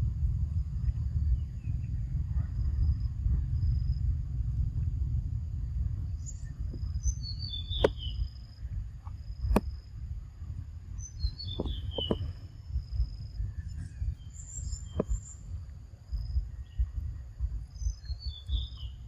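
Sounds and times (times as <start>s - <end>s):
low rumble: 0.0s - 19.0s
bird chirping: 6.2s - 8.6s, 11.0s - 12.8s, 13.5s - 17.1s, 17.7s - 19.0s.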